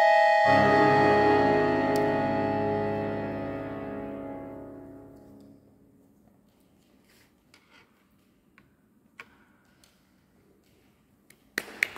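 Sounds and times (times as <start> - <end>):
accordion chord: 0.0 - 5.5.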